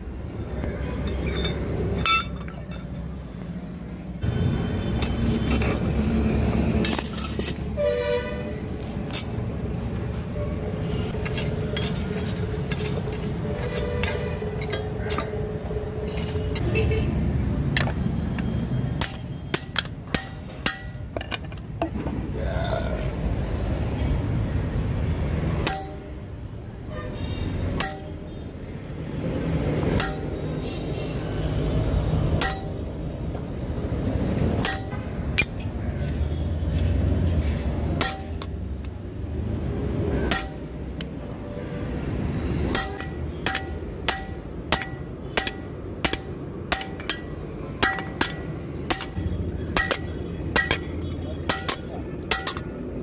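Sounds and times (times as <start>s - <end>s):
hammer ringing on anvil: 30.0s - 30.3s, 32.4s - 32.8s, 42.7s - 49.2s.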